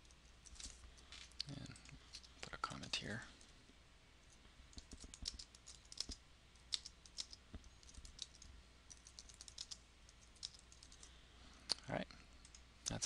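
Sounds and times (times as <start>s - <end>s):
keyboard typing: 4.7s - 11.1s.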